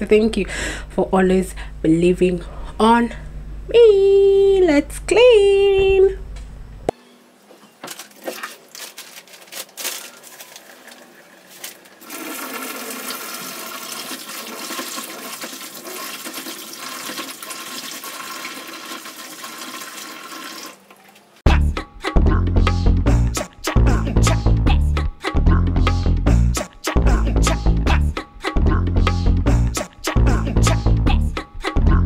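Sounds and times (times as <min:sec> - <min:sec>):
tap water running into sink: 0:10.7 - 0:21.3
music with heavy bass beat: 0:21.5 - 0:32.0.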